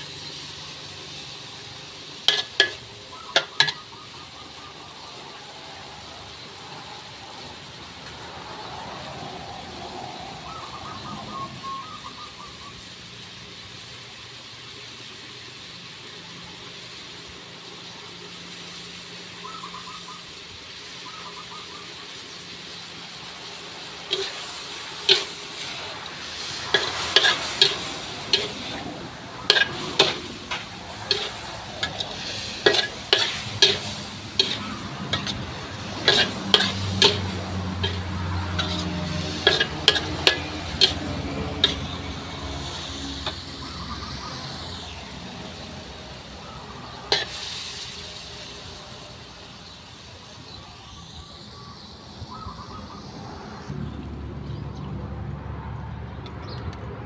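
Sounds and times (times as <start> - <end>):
metal spatula scraping wok: 0.0 - 4.3, 22.8 - 45.7, 47.0 - 49.8
food sizzling in a wok: 0.0 - 54.1.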